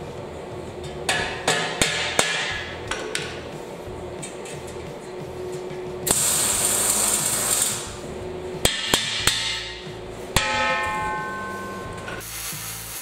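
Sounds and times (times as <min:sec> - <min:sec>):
background music: 0:00.0 - 0:13.0
hammer striking steel tank: 0:01.1 - 0:02.7, 0:08.6 - 0:12.2
hiss: 0:06.1 - 0:08.0, 0:12.2 - 0:13.0.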